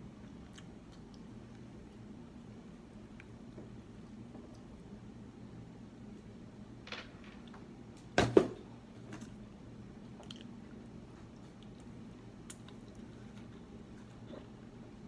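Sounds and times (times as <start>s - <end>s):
person chewing: 0.2s - 2.1s, 10.1s - 14.8s.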